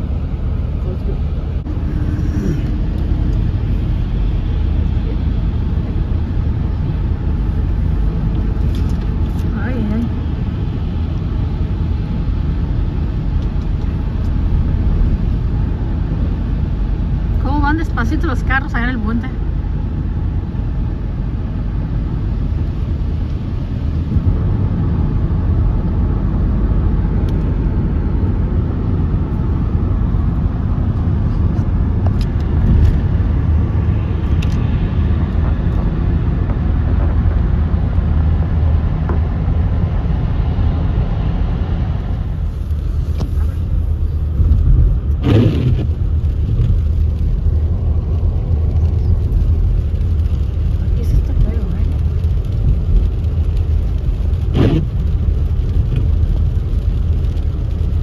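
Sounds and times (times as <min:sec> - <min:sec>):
tyre and engine rumble: 0:00.0 - 0:58.0
whoosh of passing vehicle: 0:01.4 - 0:05.6.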